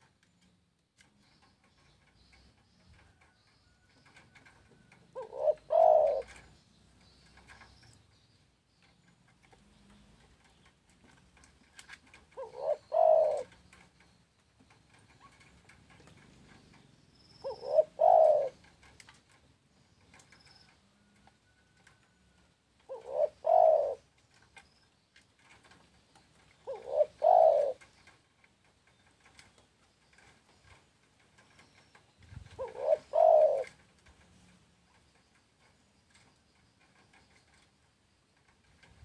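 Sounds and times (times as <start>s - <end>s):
dove cooing: 2.1s - 8.0s, 9.5s - 19.1s, 22.8s - 24.2s, 25.4s - 28.2s, 31.4s - 34.6s.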